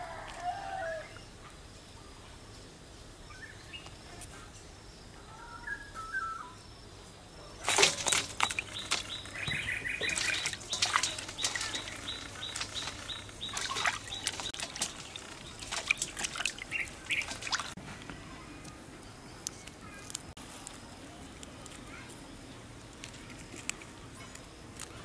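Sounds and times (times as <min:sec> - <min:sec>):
faint bird chirps: 0:03.1 - 0:06.8
water sloshing in metal basin: 0:07.6 - 0:17.8.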